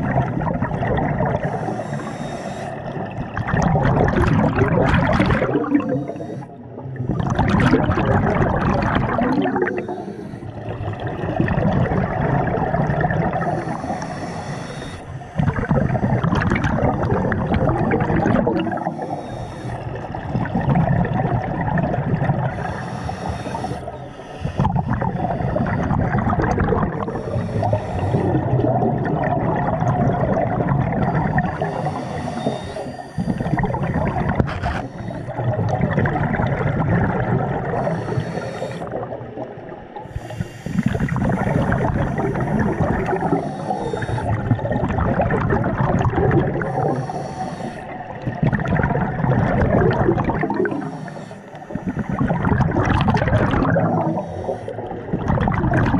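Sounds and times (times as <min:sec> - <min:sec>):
gurgling exhaled bubbles: 0:00.0 - 0:55.9
regulator inhale hiss: 0:01.4 - 0:03.0, 0:05.7 - 0:06.7, 0:09.6 - 0:10.7, 0:13.3 - 0:15.4, 0:18.7 - 0:20.2, 0:22.5 - 0:26.1, 0:26.9 - 0:28.5, 0:31.6 - 0:35.5, 0:37.7 - 0:44.5, 0:46.6 - 0:48.2, 0:50.6 - 0:52.4, 0:53.9 - 0:55.1.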